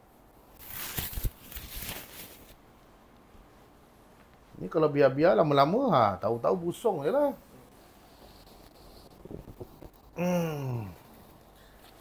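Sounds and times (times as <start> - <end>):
soft knocks and rustles on sofa: 9.1 - 10.0.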